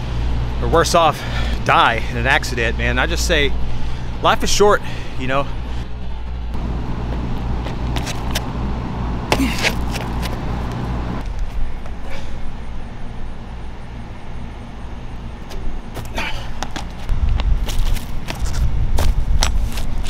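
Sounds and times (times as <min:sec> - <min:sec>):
outdoor traffic rumble: 0:00.0 - 0:20.0
sneakers landing on concrete: 0:07.1 - 0:08.5, 0:09.3 - 0:12.0, 0:15.5 - 0:20.0.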